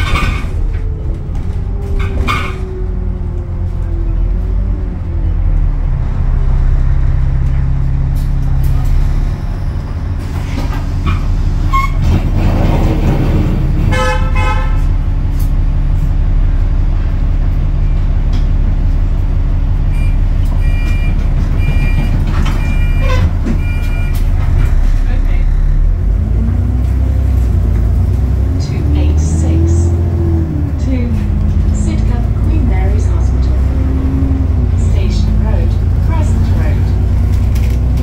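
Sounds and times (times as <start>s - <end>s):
bus engine running: 0.0s - 38.0s
vehicle horn toot: 13.9s - 14.9s.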